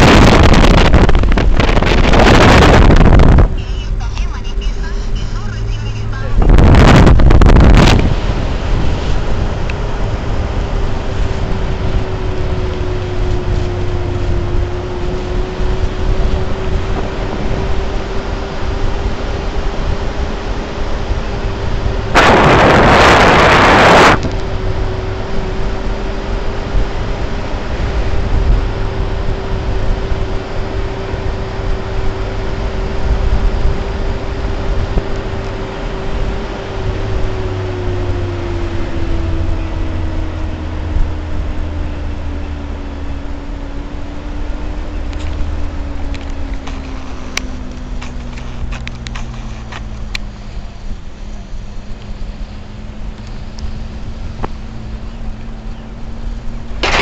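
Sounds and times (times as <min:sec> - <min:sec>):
loud rushing noise burst: 0:00.0 - 0:10.3, 0:22.0 - 0:24.3, 0:56.8 - 0:57.0
car road rumble: 0:00.0 - 0:57.0
drivetrain humming: 0:00.0 - 0:57.0.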